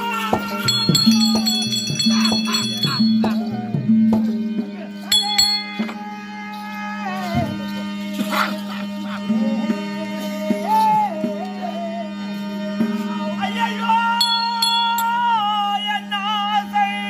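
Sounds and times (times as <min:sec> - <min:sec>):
hand cymbals ringing: 0:00.0 - 0:04.4, 0:05.0 - 0:06.8, 0:14.2 - 0:15.9
drum strokes: 0:00.0 - 0:06.0, 0:14.2 - 0:15.4
melody over drone: 0:00.5 - 0:10.7, 0:11.3 - 0:17.0.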